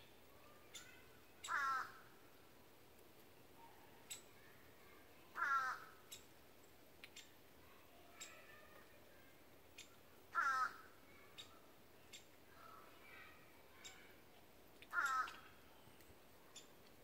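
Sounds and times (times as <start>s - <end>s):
crow cawing: 1.4s - 2.1s, 5.4s - 6.0s, 10.3s - 10.9s, 14.9s - 15.6s
faint sharp ticks: 7.0s - 7.3s.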